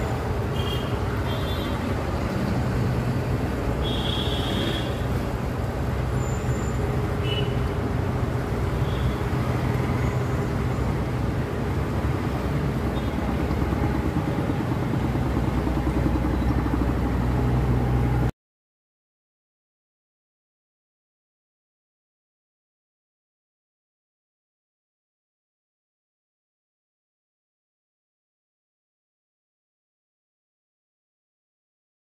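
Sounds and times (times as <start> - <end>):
low engine drone: 0.0 - 18.3
noisy rumble: 0.0 - 18.3.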